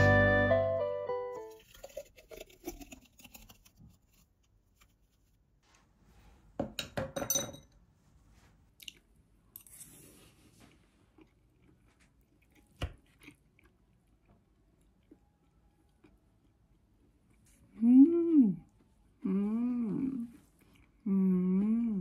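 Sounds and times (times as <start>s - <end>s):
glass clinking on glass: 7.1s - 7.8s.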